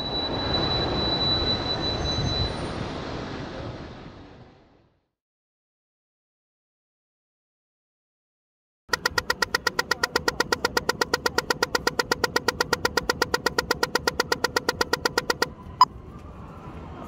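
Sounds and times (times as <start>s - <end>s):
slow locator tick: 8.9s - 15.6s
crossing signal ticking rapidly: 8.9s - 15.9s
faint traffic noise: 8.9s - 17.0s.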